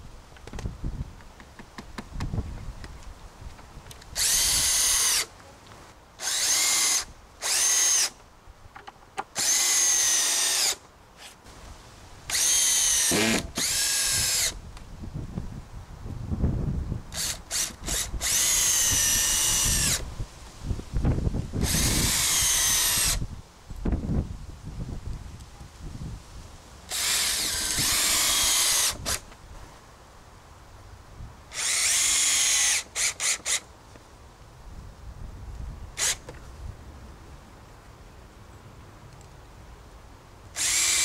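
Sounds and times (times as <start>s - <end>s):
cordless drill whining: 4.2s - 5.3s, 6.2s - 8.2s, 9.4s - 11.4s, 12.3s - 14.6s, 17.1s - 20.0s, 21.6s - 23.2s, 26.9s - 29.2s, 31.5s - 33.6s, 36.0s - 36.3s, 40.6s - 41.0s.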